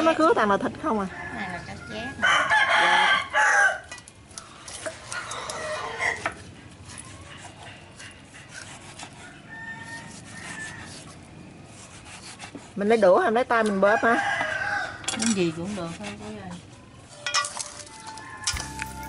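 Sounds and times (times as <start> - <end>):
rooster crowing: 1.0 - 3.9, 9.2 - 11.0, 13.8 - 15.2, 18.0 - 19.0
handling noises: 17.1 - 19.0.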